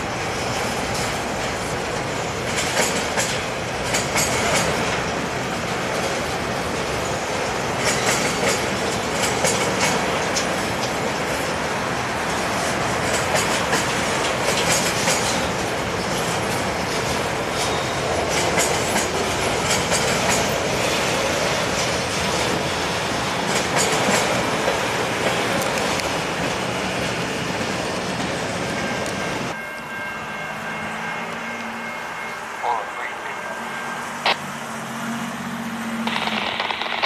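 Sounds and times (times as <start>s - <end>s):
train rolling across steel bridge: 0.0s - 37.0s
sharp wheel clicks: 36.1s - 37.0s.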